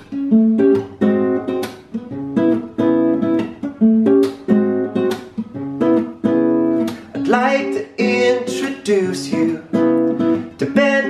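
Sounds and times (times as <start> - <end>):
acoustic guitar strummed and picked: 0.0 - 11.0.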